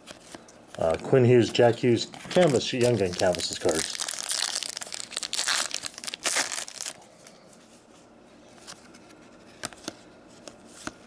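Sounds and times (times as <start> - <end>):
wrapper tearing and crinkling: 2.2 - 7.0.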